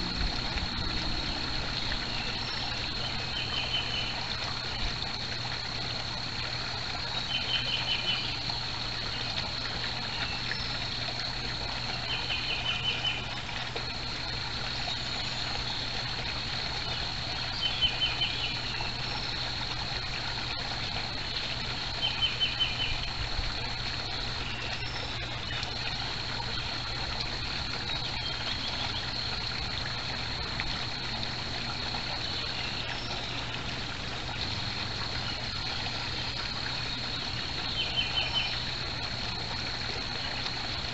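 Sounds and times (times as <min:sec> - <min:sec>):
constant high whine: 0:00.0 - 0:40.9
pond water trickling: 0:00.0 - 0:40.9.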